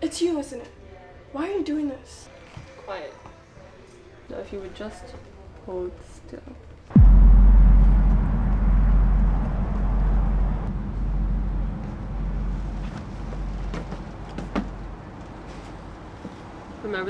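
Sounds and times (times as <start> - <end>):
deep cinematic boom: 6.9 - 15.6
falling sweep: 7.0 - 15.5.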